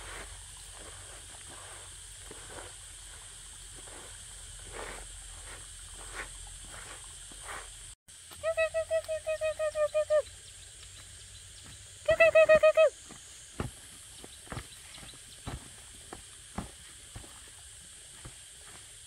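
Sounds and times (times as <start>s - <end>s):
soft scraping strokes: 0.0s - 8.0s.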